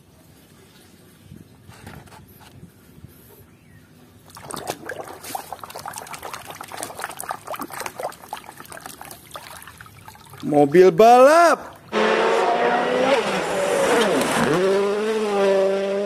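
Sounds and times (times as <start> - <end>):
water trickling: 4.2 - 10.8
hand splashing in muddy water: 4.3 - 10.5.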